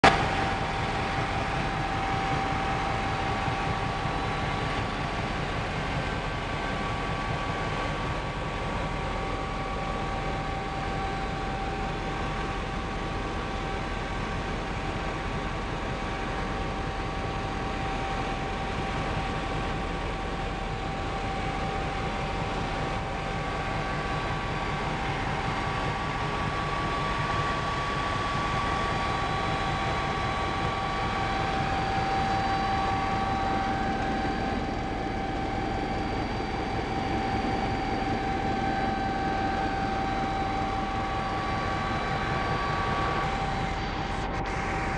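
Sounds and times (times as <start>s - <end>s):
helicopter engine and rotor noise: 0.0s - 44.9s
steady whining tones: 0.0s - 44.9s.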